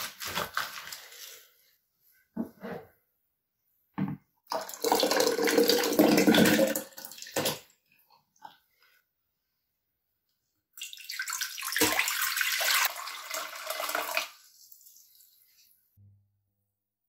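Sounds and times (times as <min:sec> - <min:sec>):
juice splashing into jug: 0:04.5 - 0:07.6.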